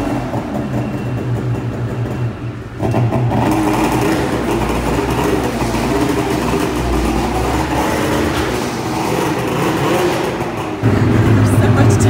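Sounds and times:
snowmobile engine running: 0:02.9 - 0:12.0.

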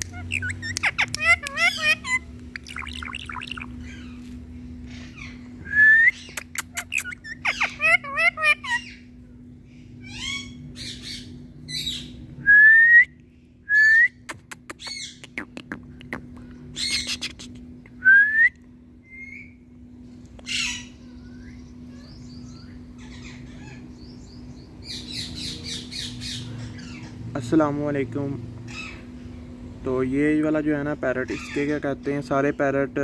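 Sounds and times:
parakeet whistles and squawks: 0:00.0 - 0:04.3, 0:06.1 - 0:09.1, 0:10.0 - 0:12.2, 0:20.5 - 0:24.1
steady low hum: 0:00.0 - 0:33.0.

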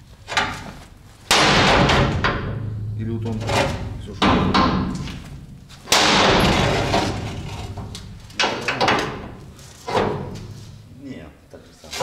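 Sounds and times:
loud bang: 0:01.3 - 0:09.4.

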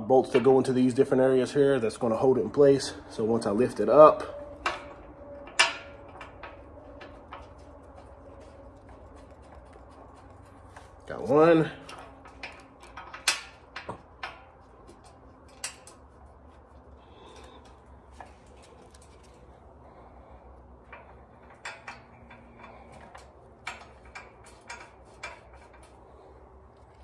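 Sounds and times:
metal bolts clinking: 0:02.6 - 0:08.9, 0:10.7 - 0:16.1, 0:20.9 - 0:26.0.

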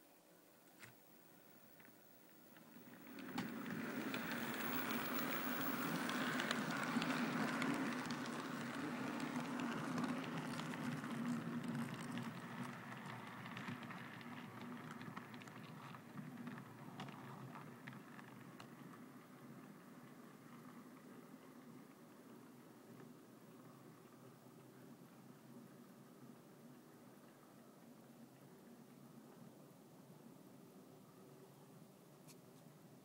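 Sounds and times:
model train motors humming: 0:01.4 - 0:17.1
wheels clicking on rails: 0:01.7 - 0:29.5.

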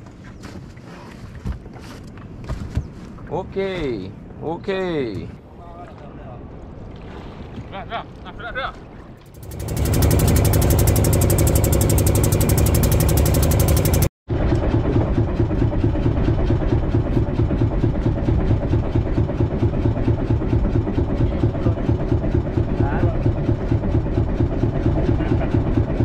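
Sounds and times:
boat engine chugging: 0:09.2 - 0:26.0.

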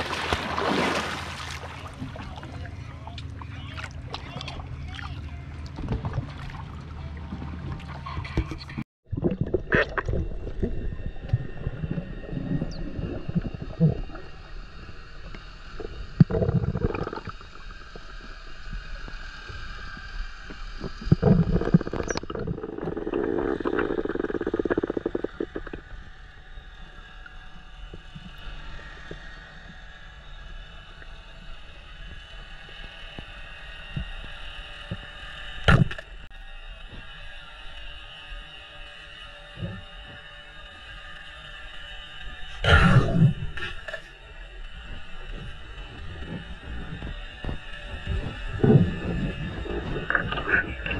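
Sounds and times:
underwater water rushing and gurgling: 0:00.0 - 0:50.9
underwater knocks and rumbles: 0:05.7 - 0:14.1, 0:15.8 - 0:17.6, 0:20.8 - 0:25.9, 0:35.7 - 0:36.1.

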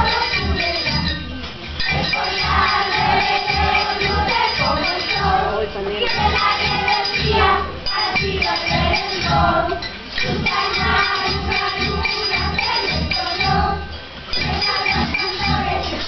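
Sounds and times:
children singing in unison: 0:00.0 - 0:01.2, 0:01.8 - 0:16.0
tambourines jingling: 0:00.0 - 0:16.0.

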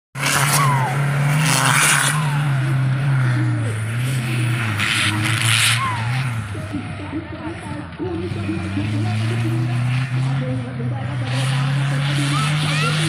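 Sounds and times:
off-road vehicle engine revving: 0:00.2 - 0:13.0.

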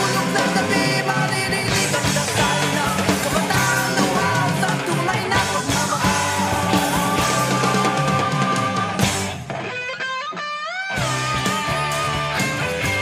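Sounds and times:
steady drum beat: 0:00.0 - 0:09.5
rock music: 0:00.0 - 0:13.0.

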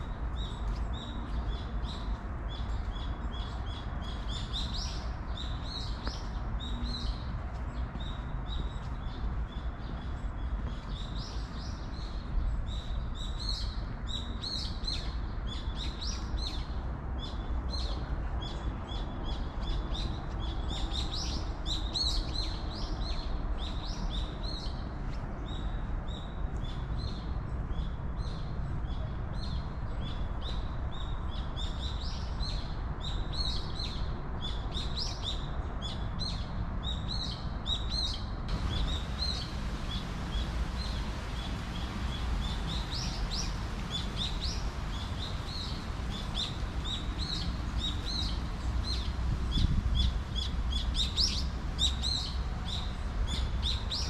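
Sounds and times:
small birds chirping: 0:34.8 - 0:54.0.

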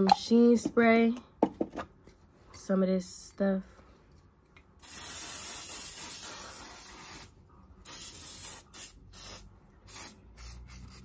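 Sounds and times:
aerosol spray hissing: 0:04.8 - 0:11.0.

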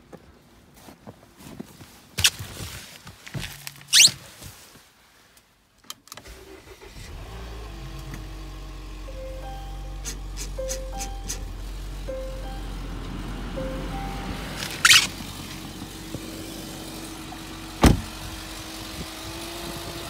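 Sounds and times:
car engine starting and idling: 0:05.9 - 0:20.0.

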